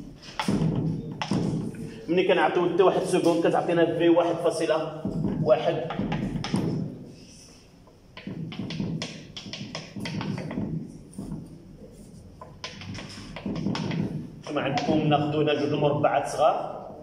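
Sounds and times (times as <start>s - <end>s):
chalk tapping on blackboard: 0.2s - 1.8s, 5.0s - 15.3s.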